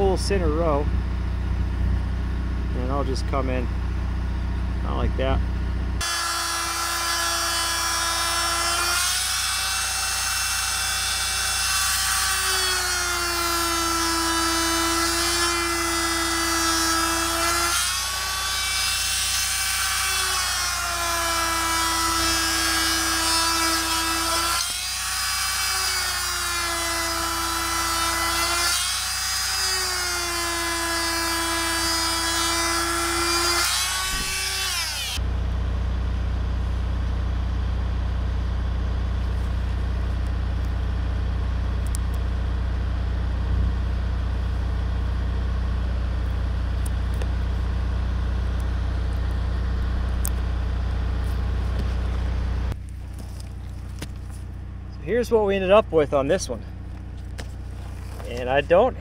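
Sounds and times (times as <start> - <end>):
oscillating multi-tool buzzing: 6.0 - 35.2.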